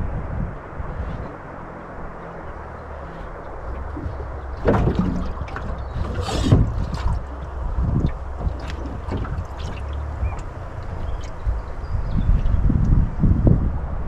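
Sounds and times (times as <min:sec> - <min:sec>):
wind rumble on microphone: 0:00.0 - 0:14.0
gear knocking in a boat: 0:02.2 - 0:13.0.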